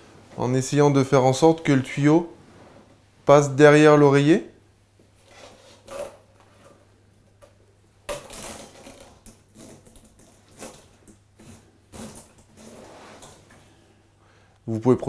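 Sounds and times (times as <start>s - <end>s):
bedding and hose rustling: 8.7s - 13.8s.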